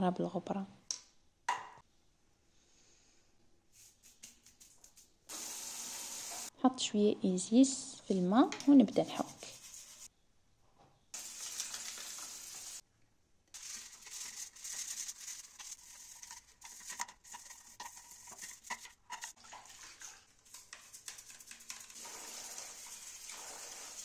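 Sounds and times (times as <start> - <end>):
toothbrush scrubbing plastic: 3.8 - 5.2, 8.9 - 10.1, 13.6 - 23.2.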